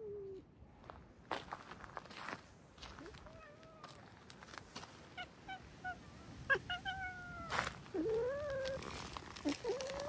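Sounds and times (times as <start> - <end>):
cat meowing and yowling: 5.2 - 10.0.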